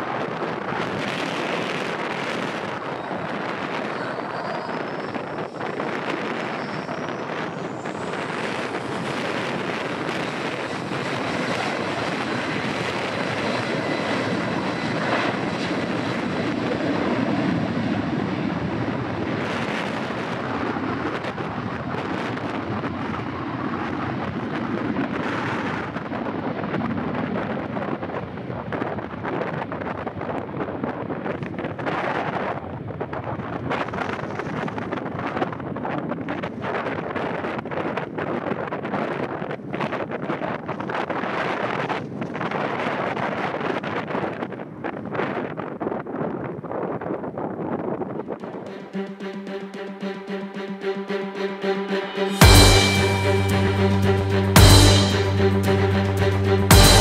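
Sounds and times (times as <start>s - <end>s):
jet engines roaring: 0.0s - 24.3s
wind buffeting microphone: 0.0s - 48.7s.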